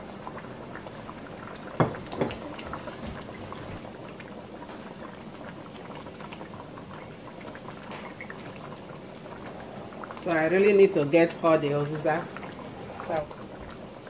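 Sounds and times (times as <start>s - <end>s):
soup bubbling and popping: 0.0s - 14.0s.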